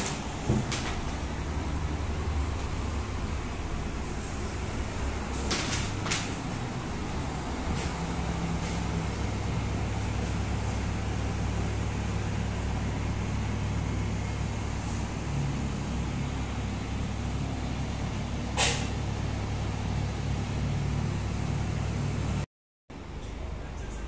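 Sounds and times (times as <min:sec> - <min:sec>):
road traffic drone: 0:00.0 - 0:24.0
short sharp hiss: 0:18.6 - 0:19.0.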